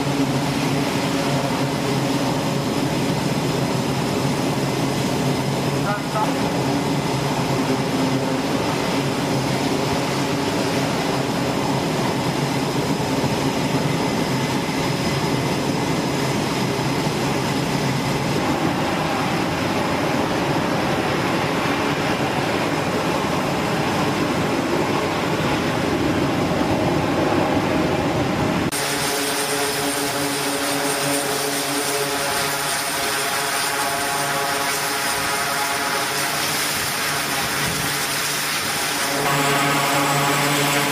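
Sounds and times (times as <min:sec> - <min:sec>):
turboprop engines and propellers: 0:00.0 - 0:40.9
high-pitched whine: 0:27.6 - 0:40.9.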